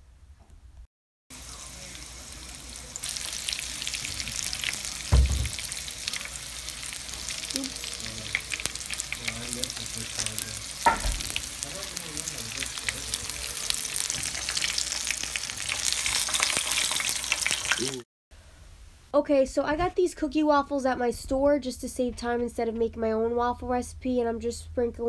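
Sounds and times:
chicken sizzling in oil: 1.3 - 18.0
tongs knocking in pan: 8.3 - 11.5.

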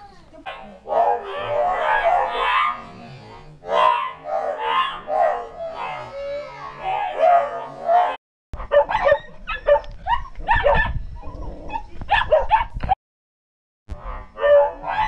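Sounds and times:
dog barking and yipping: 0.5 - 2.8, 3.7 - 6.1, 6.9 - 11.0, 11.7 - 12.9, 14.0 - 15.0.

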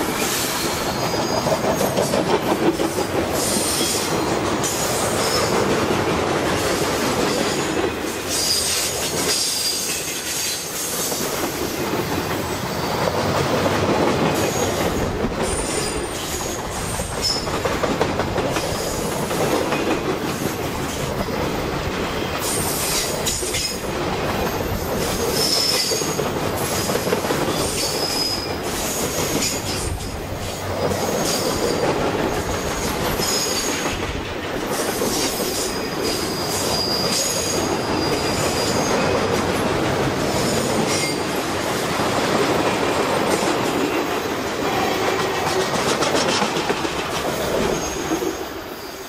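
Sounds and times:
train wheels rumbling on rails: 0.0 - 49.0
high-pitched wheel squeal: 27.6 - 28.5, 36.0 - 39.1.

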